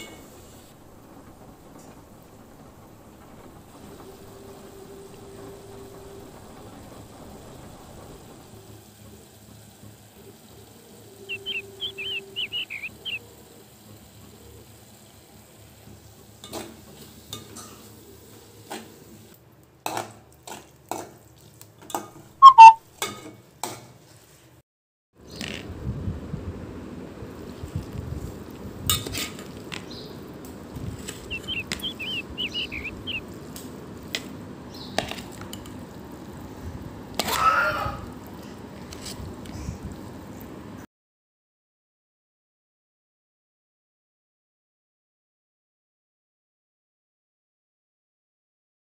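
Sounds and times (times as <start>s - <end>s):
high whistled chirps: 11.2s - 13.2s, 22.4s - 22.8s, 31.2s - 33.2s.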